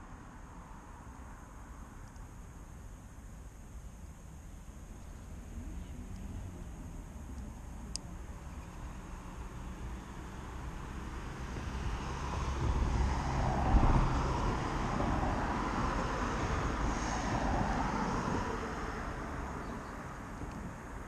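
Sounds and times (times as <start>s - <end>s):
vehicle passing by: 5.2s - 21.0s.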